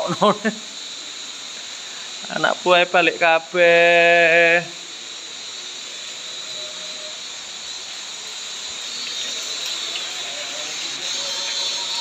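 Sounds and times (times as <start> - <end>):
rain falling: 7.5 - 12.0.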